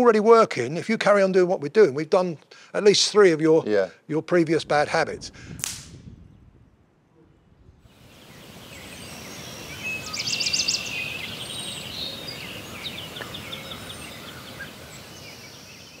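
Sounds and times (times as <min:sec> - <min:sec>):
background hiss: 0:00.0 - 0:06.0, 0:07.8 - 0:16.0
birds singing: 0:06.2 - 0:16.0.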